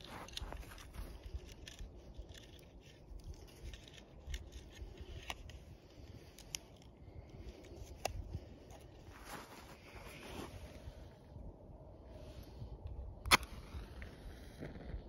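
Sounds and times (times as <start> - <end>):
sharp clicks and scrapes: 0.0 - 9.2
wind rumbling on microphone: 0.0 - 15.0.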